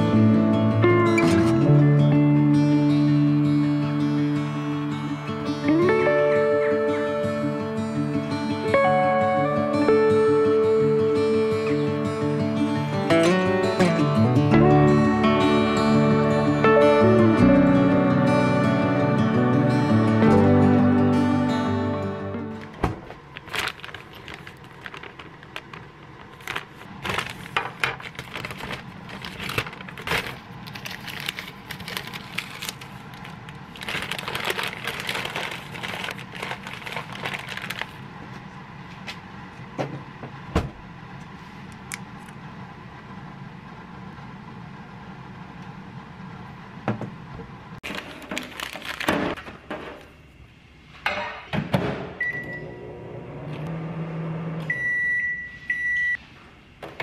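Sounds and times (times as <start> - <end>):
paper bag rustling: 22.5 - 38.4, 47.8 - 49.4
microwave keypad beep: 52.2 - 52.8, 54.7 - 56.2.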